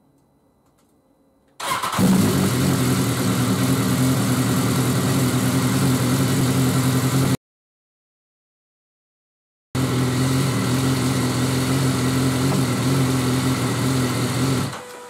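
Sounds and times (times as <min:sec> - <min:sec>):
motorcycle engine starting and idling: 0:01.6 - 0:07.4, 0:09.8 - 0:15.0.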